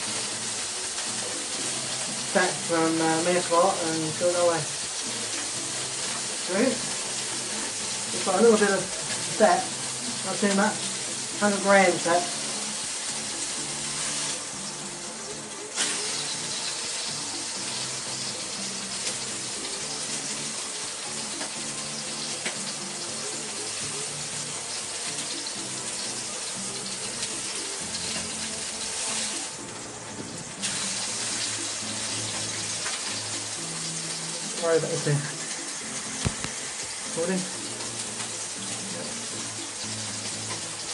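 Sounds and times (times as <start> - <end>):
meat sizzling in hot fat: 0.0 - 40.9.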